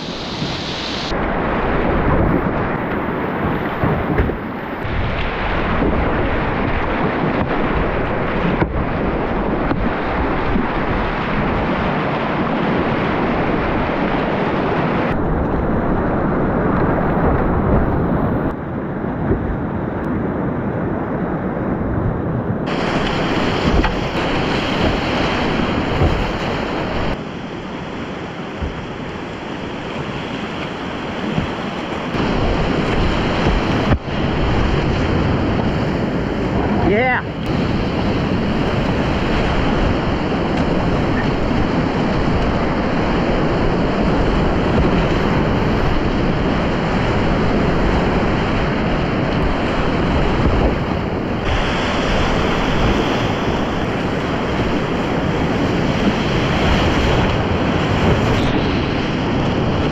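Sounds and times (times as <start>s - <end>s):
wind buffeting microphone: 0.0s - 59.9s
rushing whitewater rapids: 22.7s - 59.9s.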